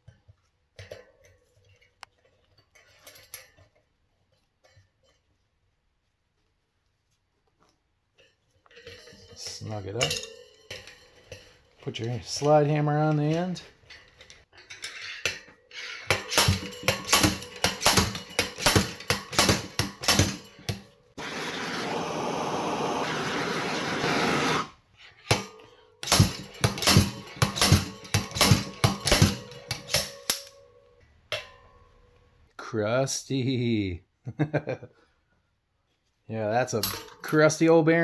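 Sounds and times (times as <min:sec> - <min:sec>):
slide hammer striking metal: 0:16.0 - 0:21.0, 0:25.3 - 0:30.6
hand torch hissing: 0:21.2 - 0:24.8.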